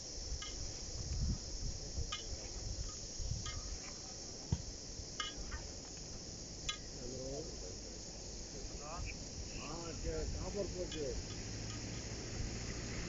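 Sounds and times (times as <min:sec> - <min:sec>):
crickets chirping: 0:00.0 - 0:13.0.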